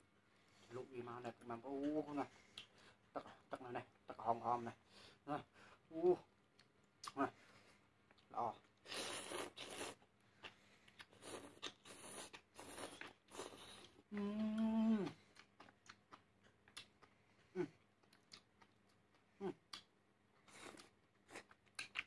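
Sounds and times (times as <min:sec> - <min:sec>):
chewing: 0:08.1 - 0:22.0
hummed voice: 0:14.1 - 0:15.2.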